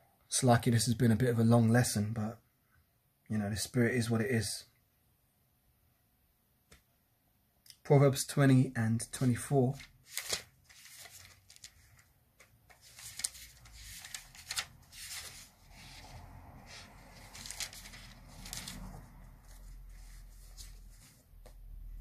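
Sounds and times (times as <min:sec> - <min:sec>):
book pages rustling: 0:09.7 - 0:21.9.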